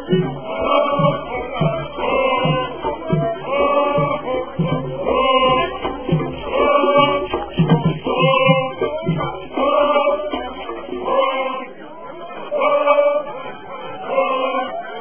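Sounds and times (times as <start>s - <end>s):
steady music beat: 0.0s - 11.9s
group of voices chanting: 0.0s - 15.0s.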